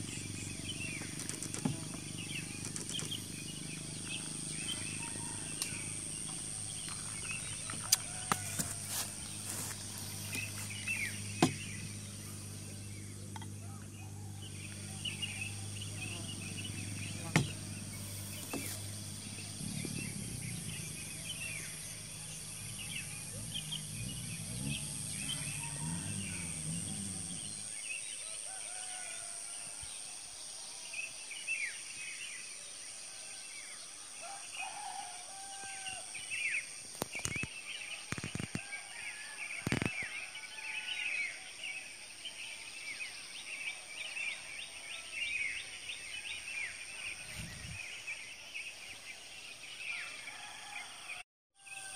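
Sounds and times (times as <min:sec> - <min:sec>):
small birds chirping: 0:00.0 - 0:29.4, 0:39.6 - 0:40.4.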